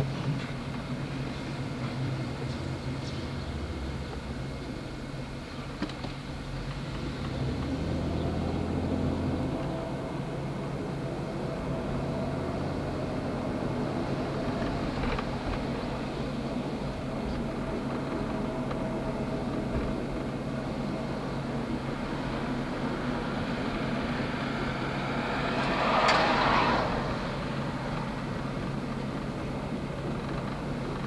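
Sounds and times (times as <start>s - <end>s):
vehicle rumble and hum: 0.0s - 31.0s.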